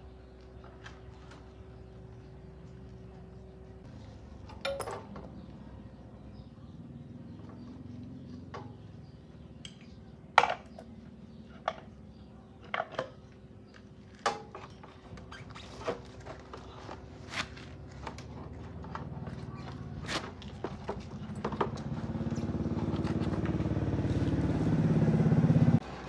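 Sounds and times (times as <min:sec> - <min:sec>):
metal tools clinking: 0:04.5 - 0:05.3.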